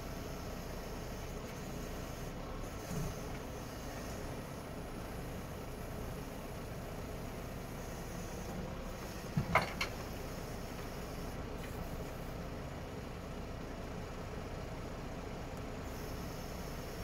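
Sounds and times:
truck diesel engine running: 0.0 - 17.0.

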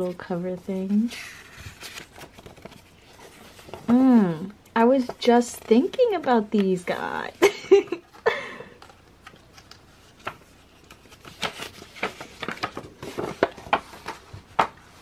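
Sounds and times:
paper rustling and crinkling: 0.0 - 15.0.

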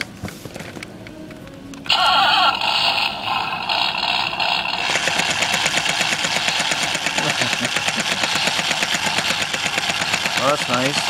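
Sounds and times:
pulsing electronic engine rumble: 1.8 - 11.0.

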